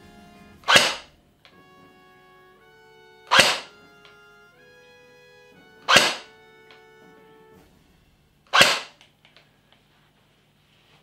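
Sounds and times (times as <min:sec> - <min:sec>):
airsoft gun shots: 0:00.6 - 0:01.1, 0:03.3 - 0:03.8, 0:05.8 - 0:06.3, 0:08.5 - 0:09.0.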